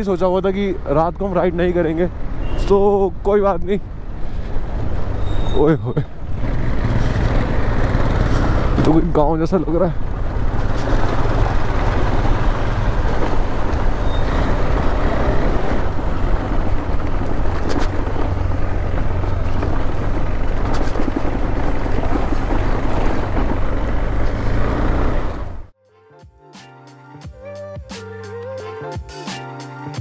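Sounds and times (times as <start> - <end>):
motorcycle engine and road noise: 0.0 - 25.8.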